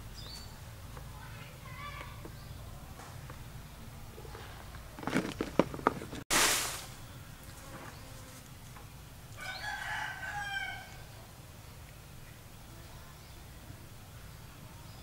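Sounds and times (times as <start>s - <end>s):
short loud noisy burst: 6.3s - 7.1s
rooster crowing: 9.4s - 11.1s.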